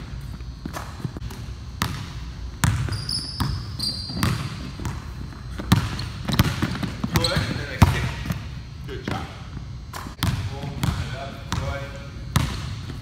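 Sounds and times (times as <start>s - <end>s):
sneaker squeaks: 0.1s - 8.4s
basketball bouncing on wooden floor: 0.6s - 8.4s, 10.0s - 13.0s.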